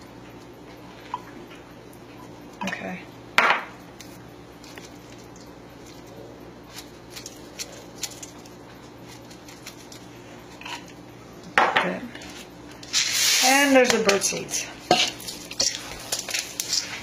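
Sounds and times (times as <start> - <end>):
dried insects ticking into metal bowl: 13.8 - 17.0.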